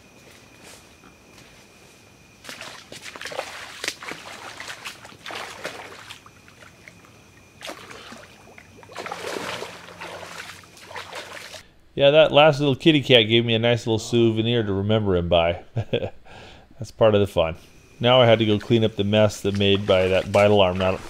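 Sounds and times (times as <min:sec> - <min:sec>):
insects chirring: 0:00.0 - 0:21.0
wading through shallow water: 0:02.2 - 0:11.6, 0:18.2 - 0:21.0
fish splashing into water: 0:02.4 - 0:11.6.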